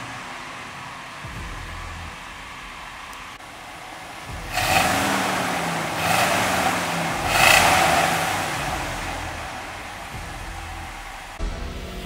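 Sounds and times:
pickup truck engine revving: 0.0 - 11.4.

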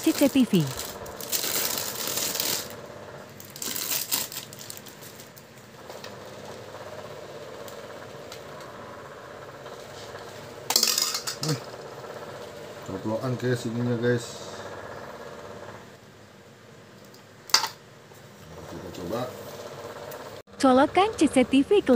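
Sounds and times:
plastic wrap crinkling: 0.0 - 2.8, 3.4 - 5.5.

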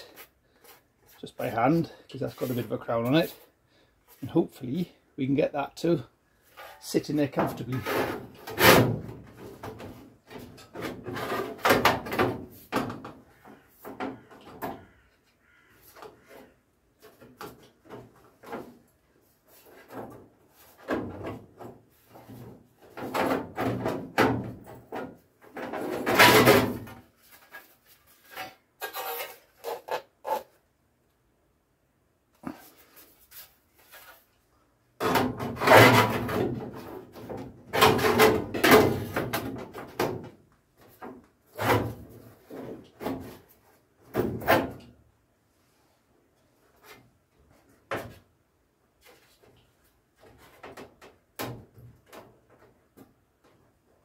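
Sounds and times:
panel scraping and knocking on bodywork: 7.4 - 15.0, 19.5 - 30.5, 35.0 - 44.9.

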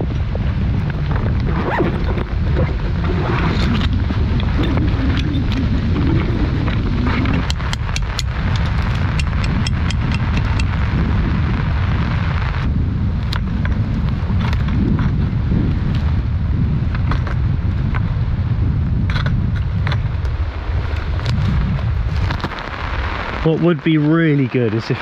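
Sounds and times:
heavy rain hissing: 0.0 - 16.9, 20.1 - 25.0
wind buffeting microphone: 0.0 - 25.0
sharp clicks and ticks: 3.6 - 11.0, 13.2 - 15.2.

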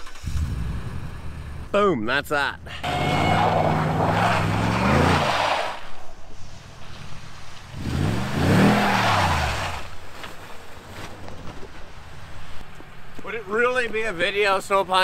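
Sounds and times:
truck engine revving: 2.7 - 6.0, 6.9 - 10.0
tyres spinning in snow: 2.8 - 12.4.

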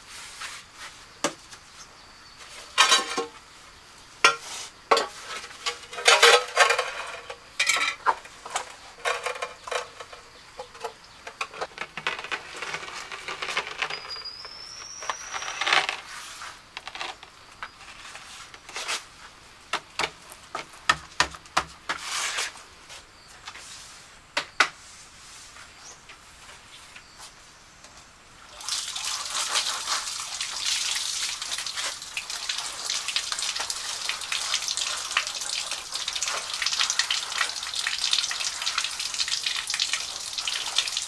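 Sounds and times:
hand tools clinking and scraping: 2.4 - 3.4, 4.2 - 19.0.

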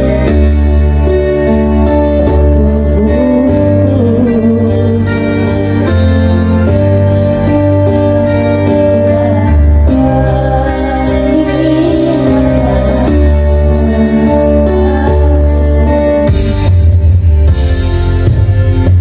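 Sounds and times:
amplified instrumental music: 0.0 - 19.0
boys singing into microphones: 8.9 - 16.0.

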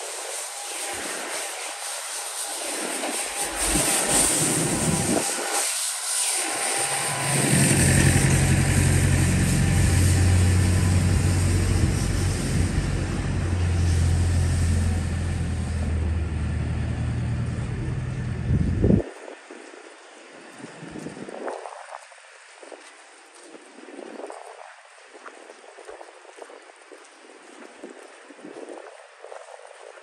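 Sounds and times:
hiss of traffic: 0.0 - 30.0
vehicle engine humming: 3.2 - 5.4, 6.2 - 19.1.

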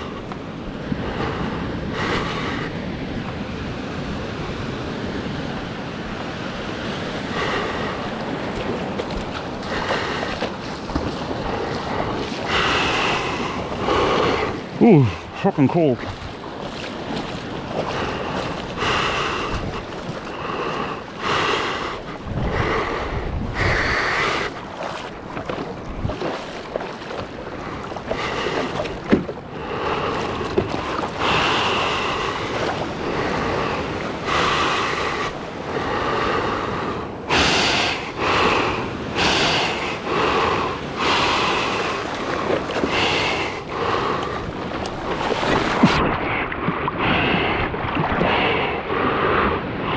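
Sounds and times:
moving water wash: 0.0 - 49.9
hands splashing water paddling: 7.3 - 22.8, 23.6 - 35.4, 41.0 - 48.6
wind on microphone: 16.0 - 49.9.

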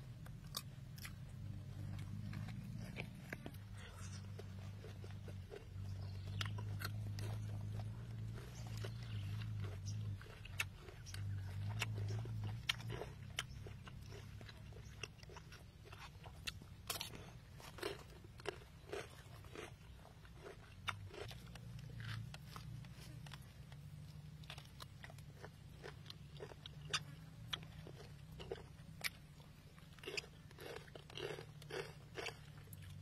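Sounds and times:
low steady hum: 0.0 - 33.0
person chewing food: 0.0 - 33.0.

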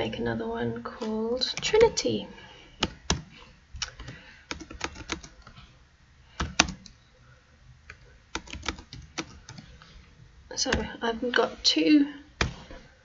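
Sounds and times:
typing on computer keyboard: 2.8 - 5.5, 6.4 - 7.0, 7.9 - 9.7.

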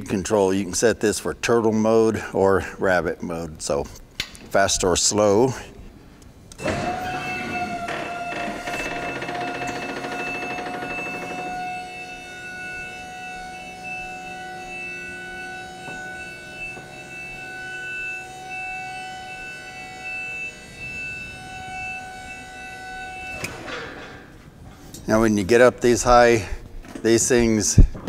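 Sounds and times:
hydraulic lift pump whining: 6.5 - 25.1
rough mechanical noise: 6.6 - 12.9.

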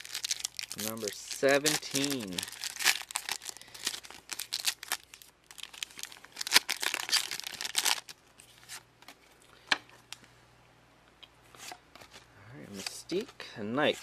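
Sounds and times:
foil wrapper tearing and crinkling: 0.0 - 8.2.

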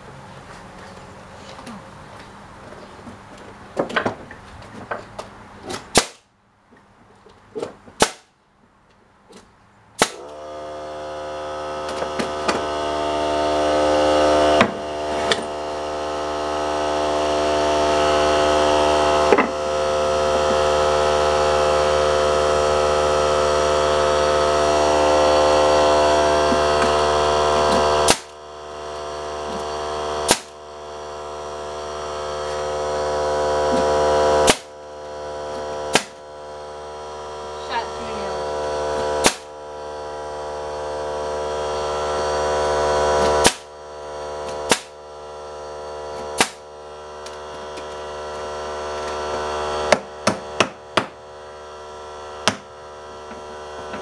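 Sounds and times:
nail gun firing into boards: 5.7 - 6.3, 8.0 - 8.3, 10.0 - 10.4, 28.1 - 28.3, 30.3 - 30.6, 34.4 - 34.7, 35.9 - 36.2, 39.2 - 39.5, 43.2 - 43.7, 44.4 - 45.0, 46.4 - 46.6
air compressor humming: 10.0 - 54.0.

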